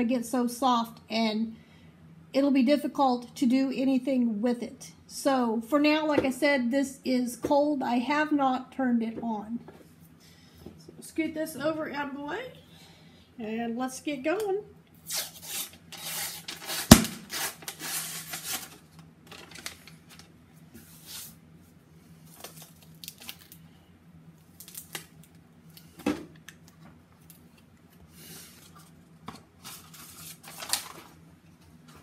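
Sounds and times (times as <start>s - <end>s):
paper label tearing: 15.1s - 18.8s
cardboard rustling: 28.4s - 31.1s.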